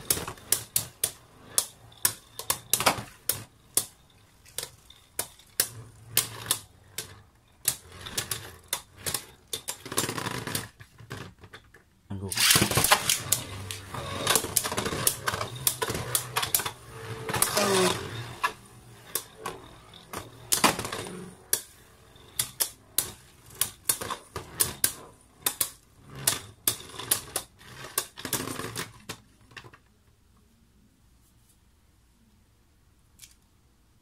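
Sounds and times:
plastic parts clicking: 0:00.0 - 0:19.4, 0:33.2 - 0:33.5.

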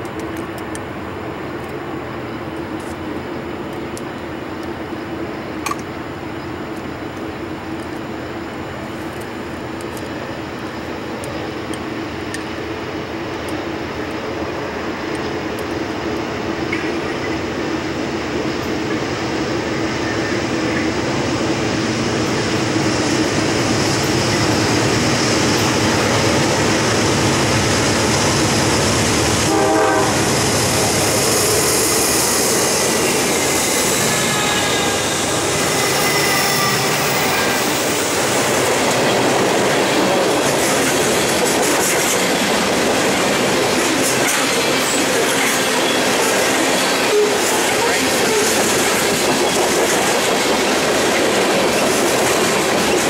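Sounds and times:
diesel locomotive passing: 0:00.0 - 0:53.0
high wheel squeal: 0:31.2 - 0:38.1.

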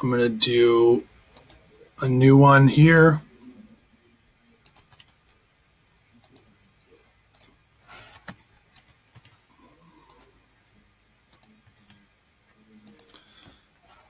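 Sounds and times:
mouse and keyboard clicks: 0:11.3 - 0:12.0.

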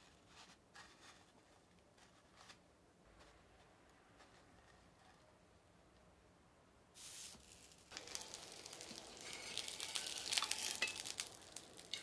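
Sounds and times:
breaded cutlet frying: 0:07.0 - 0:12.0
oil hissing on griddle: 0:07.0 - 0:12.0.

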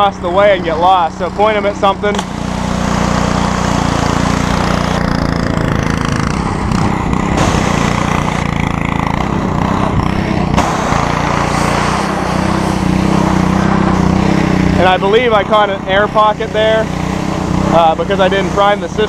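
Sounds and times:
pressure washer engine drone: 0:00.0 - 0:19.0
high-pressure water jet hiss: 0:10.6 - 0:14.0.

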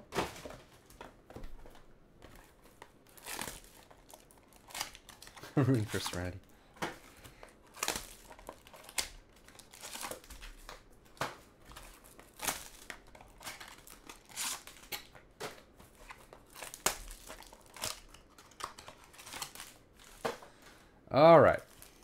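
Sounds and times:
foil and plastic wrappers crinkling: 0:01.5 - 0:20.8, 0:21.5 - 0:22.0.

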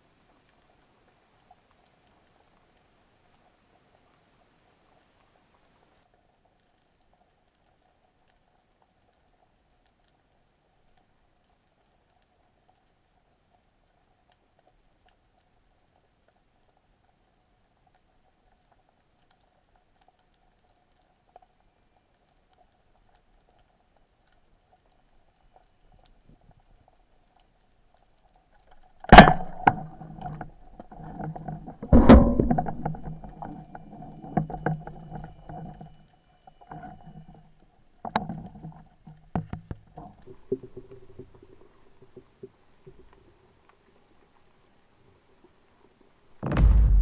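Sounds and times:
speargun firing underwater: 0:29.0 - 0:30.4, 0:31.8 - 0:33.5, 0:46.4 - 0:47.0
underwater knocks: 0:29.1 - 0:35.8.

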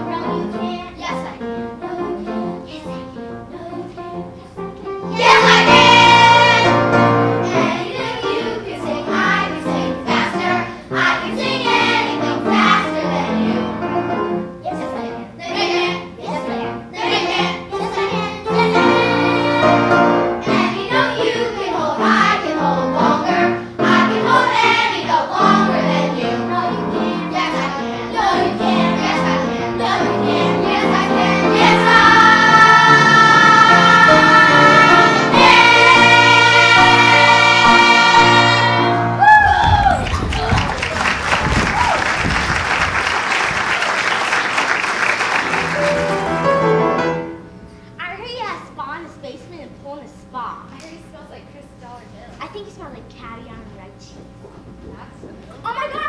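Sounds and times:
instrumental accompaniment: 0:00.0 - 0:39.2, 0:42.2 - 0:48.0
children singing: 0:05.1 - 0:13.9, 0:15.4 - 0:39.2.

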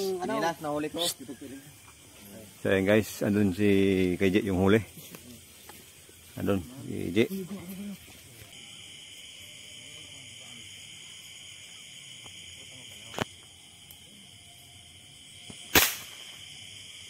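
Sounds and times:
crickets chirping: 0:00.0 - 0:17.0
loud sharp crack: 0:15.5 - 0:16.5.

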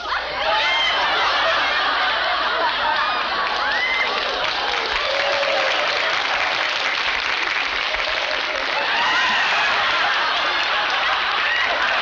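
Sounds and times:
voices in audience: 0:00.0 - 0:12.0
audience clapping: 0:00.9 - 0:12.0.

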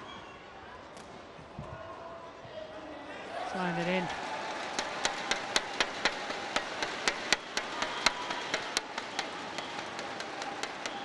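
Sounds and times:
crowd noise: 0:00.0 - 0:11.0
crowd clapping: 0:03.5 - 0:11.0
thundersticks banging: 0:04.6 - 0:11.0.

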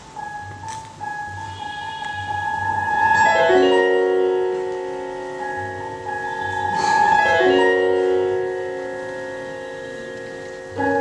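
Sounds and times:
digital piano chords: 0:00.0 - 0:11.0.

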